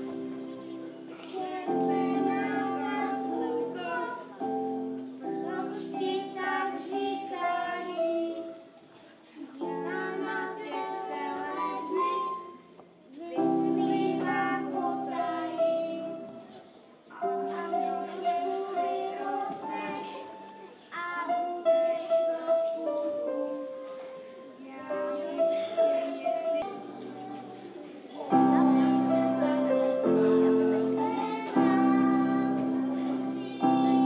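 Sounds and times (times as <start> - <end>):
children singing: 0.0 - 34.0
instrumental accompaniment: 9.6 - 34.0.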